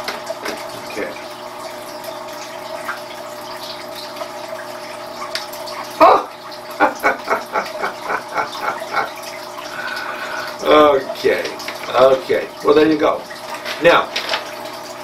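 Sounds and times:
man laughing: 0:06.8 - 0:09.2.

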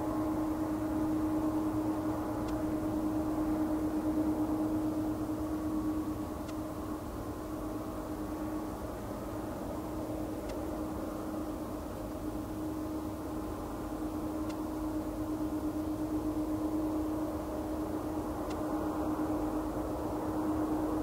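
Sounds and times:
jet engines droning: 0:00.0 - 0:21.0.

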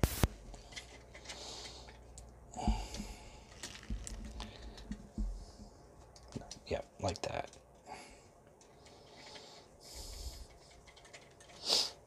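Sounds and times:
breath through nose: 0:08.9 - 0:10.6, 0:11.6 - 0:12.0
plastic toy parts clicking: 0:10.3 - 0:11.7.

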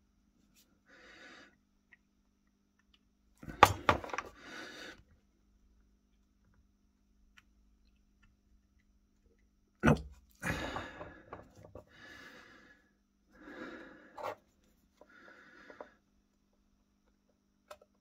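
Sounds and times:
man breathing hard: 0:03.8 - 0:05.1, 0:10.4 - 0:14.4.

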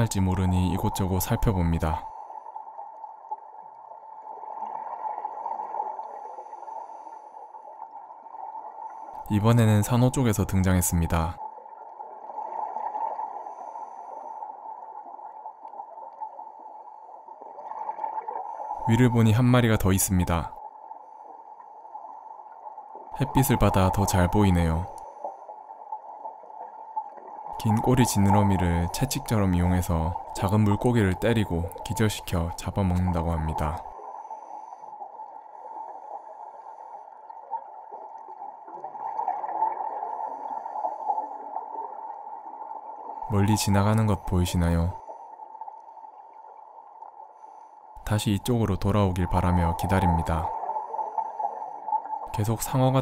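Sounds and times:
regulator bubbles gurgling: 0:00.0 - 0:06.7, 0:22.0 - 0:25.0, 0:26.0 - 0:34.6
underwater rushing noise: 0:11.5 - 0:19.2, 0:20.8 - 0:47.6, 0:49.0 - 0:52.8.

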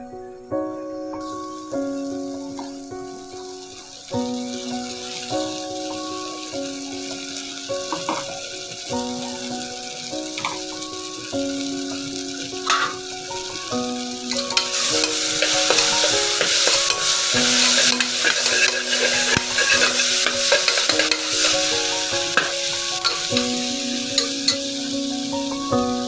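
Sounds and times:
background music: 0:00.0 - 0:26.0
vegetables sizzling in hot oil: 0:01.0 - 0:26.0
steel spoon scraping pot: 0:14.6 - 0:21.6.

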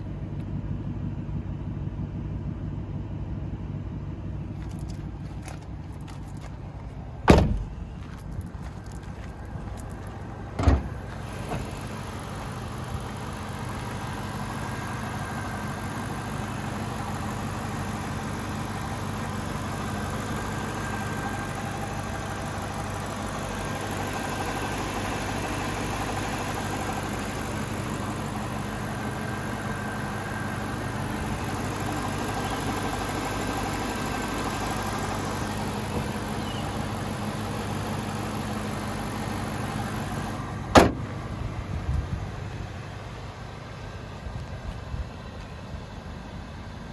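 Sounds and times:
car engine idling: 0:00.0 - 0:46.9
sharp thump: 0:07.2 - 0:07.8, 0:10.6 - 0:10.9, 0:40.7 - 0:41.1.

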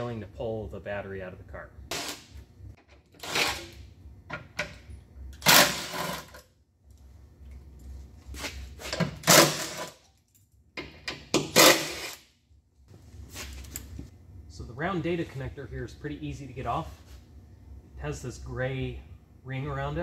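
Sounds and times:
impact wrench bursts: 0:01.9 - 0:02.4, 0:05.4 - 0:06.4, 0:11.4 - 0:12.2.

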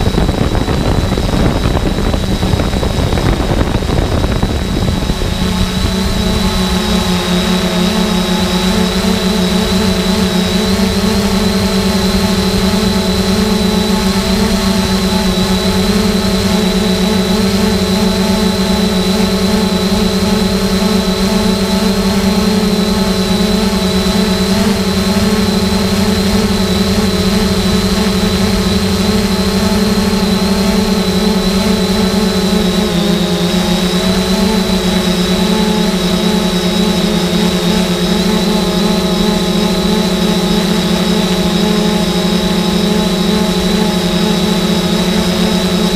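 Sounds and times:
drone propellers humming: 0:00.0 - 0:45.9.

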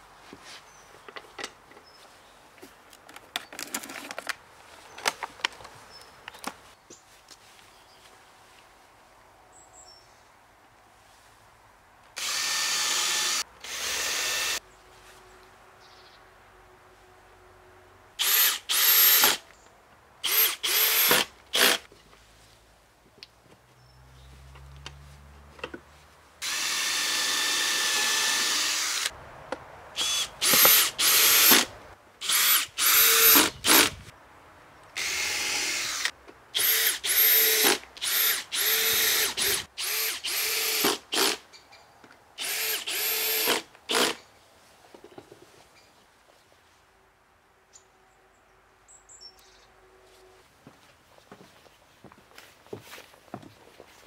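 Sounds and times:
drill driving into wood: 0:12.2 - 0:14.6, 0:18.2 - 0:19.4, 0:20.2 - 0:21.9, 0:26.4 - 0:29.1, 0:30.0 - 0:34.0, 0:35.0 - 0:41.4, 0:42.4 - 0:44.2.

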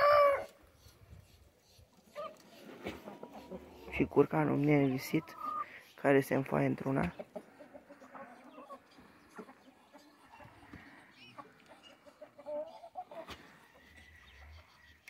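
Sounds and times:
chicken call: 0:00.0 - 0:00.6
chickens clucking: 0:00.0 - 0:15.0.

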